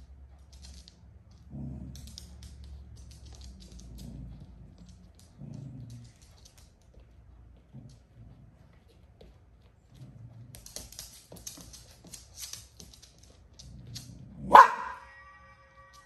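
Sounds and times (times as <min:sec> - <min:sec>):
dog low rumbling: 0:01.3 - 0:06.7, 0:07.5 - 0:11.0
dog barking: 0:14.4 - 0:15.1.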